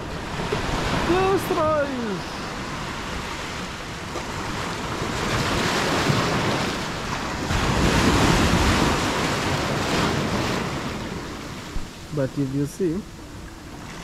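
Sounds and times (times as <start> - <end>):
ocean surf washing onto beach: 0.0 - 14.0
wind rumbling on microphone: 0.0 - 14.0.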